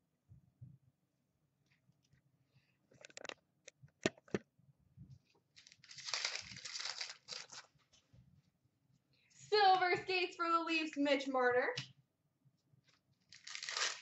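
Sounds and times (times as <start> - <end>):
cards rustling as flipped: 5.6 - 7.7, 13.3 - 14.0.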